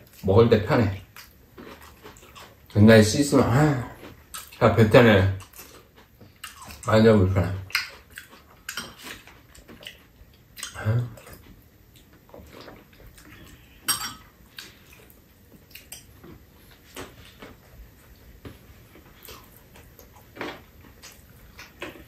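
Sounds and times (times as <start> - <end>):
utensils clinking on bowls: 13.8 - 14.3.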